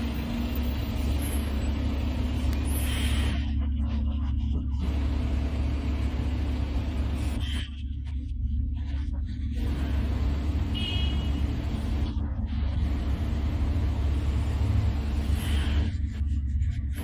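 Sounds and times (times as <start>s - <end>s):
truck diesel engine rumble: 0.0s - 7.6s, 8.8s - 17.0s.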